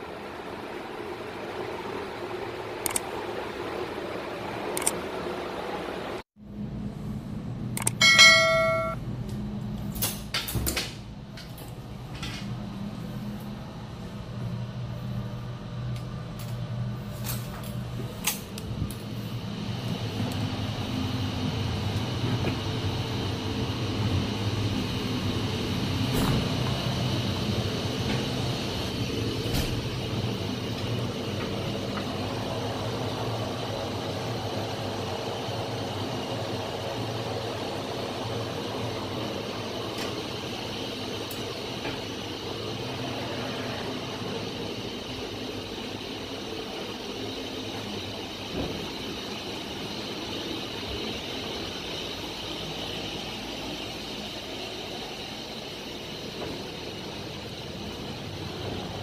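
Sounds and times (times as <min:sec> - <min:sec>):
engine-room machinery hum: 0:00.0 - 0:59.0.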